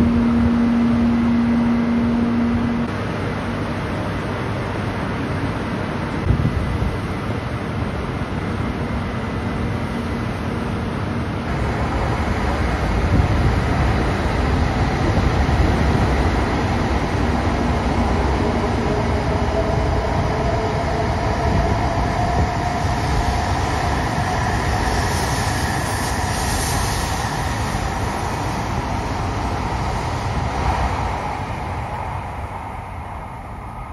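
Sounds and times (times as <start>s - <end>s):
train whine rising in pitch: 0.0s - 3.2s, 11.2s - 33.9s
train rumbling past: 0.0s - 33.9s.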